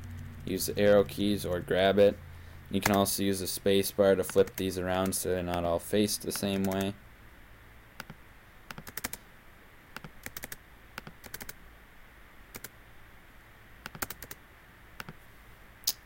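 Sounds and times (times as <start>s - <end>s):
computer keyboard keys clicking: 2.8s - 3.1s, 6.4s - 6.9s, 8.0s - 9.2s, 10.0s - 11.6s, 12.5s - 12.7s, 13.9s - 14.4s.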